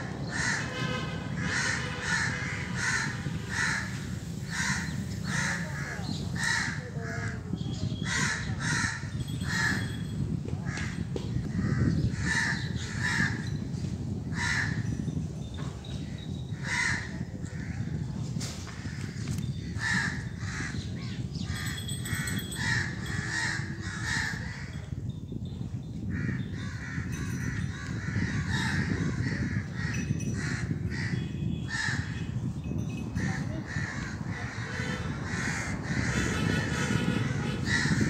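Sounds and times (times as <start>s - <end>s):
crows cawing: 0.2s - 0.8s, 1.4s - 7.4s, 8.0s - 9.8s, 10.6s - 13.5s, 14.3s - 14.8s, 16.6s - 17.8s, 19.8s - 20.8s, 22.1s - 24.8s, 26.1s - 32.2s, 33.3s - 38.0s.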